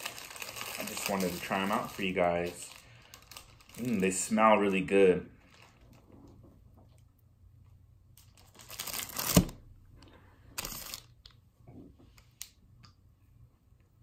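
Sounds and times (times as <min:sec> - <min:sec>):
plastic wrapper crinkling: 0:00.0 - 0:06.1, 0:08.2 - 0:09.6, 0:10.6 - 0:11.3.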